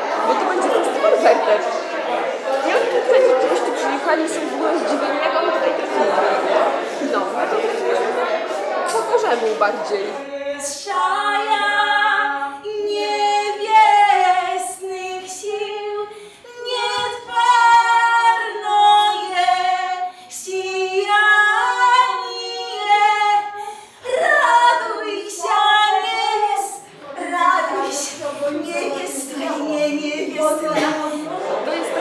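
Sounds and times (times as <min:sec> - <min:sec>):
women singing a cappella: 0:10.1 - 0:32.0.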